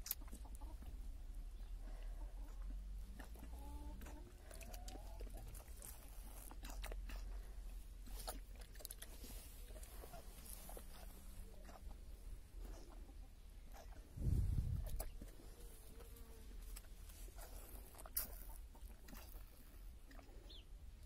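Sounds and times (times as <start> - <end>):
goat lapping water: 1.9 - 13.0.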